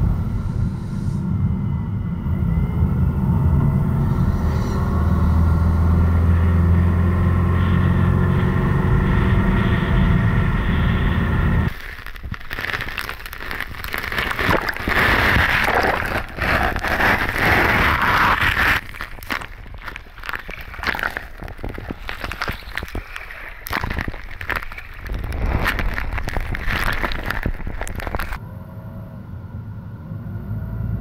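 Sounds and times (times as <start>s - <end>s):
car engine and road hum: 3.6s - 11.7s.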